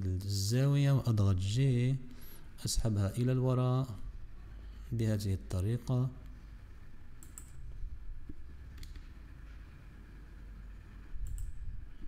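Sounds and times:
low steady hum: 0.0 - 12.0
mouse and keyboard clicks: 11.2 - 11.6.

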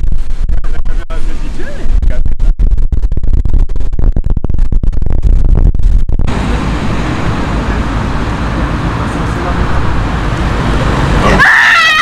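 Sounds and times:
wind buffeting microphone: 0.0 - 11.4
outdoor noise: 0.0 - 12.0
steady rush of wind: 0.0 - 12.0.

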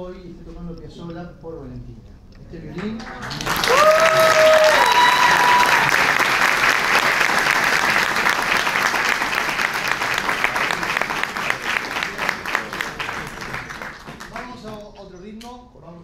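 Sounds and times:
audience applauding: 2.8 - 14.8
high held cheers: 3.2 - 9.2.

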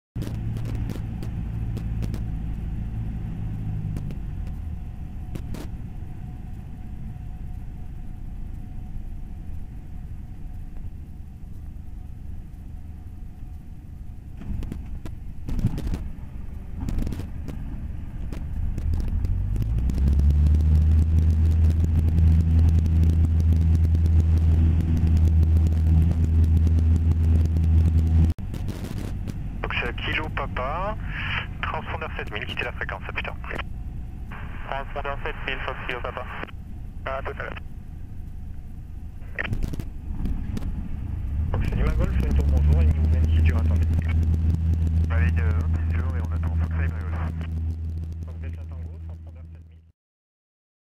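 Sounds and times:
propeller plane engine: 0.1 - 49.9
wind noise: 14.2 - 29.6, 39.2 - 42.3.

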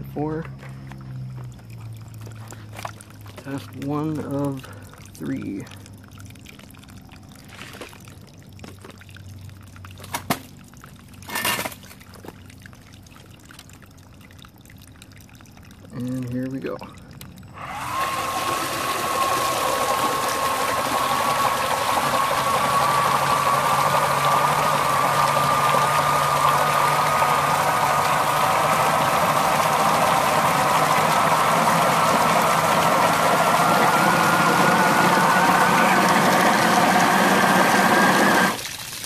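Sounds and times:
water rushing and splashing: 1.1 - 39.0
gear whine rising in pitch: 17.5 - 38.6.

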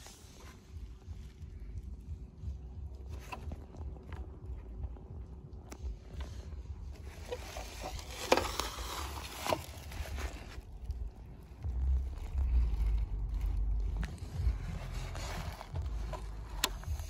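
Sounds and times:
steady low rumble: 0.0 - 17.0
rustling of packaging: 6.9 - 17.0.

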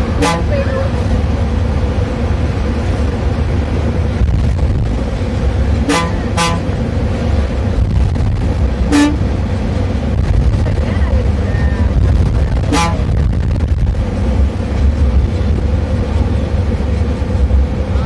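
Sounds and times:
bus horn toots: 0.0 - 1.0, 5.8 - 6.8, 8.8 - 9.3, 12.6 - 13.2
bus engine running: 0.0 - 18.0.

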